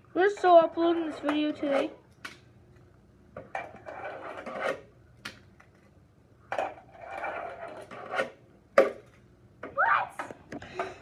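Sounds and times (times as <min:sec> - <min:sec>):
fingerboard wheels rolling and scraping: 0:00.2 - 0:02.0, 0:03.4 - 0:04.9, 0:06.5 - 0:09.2.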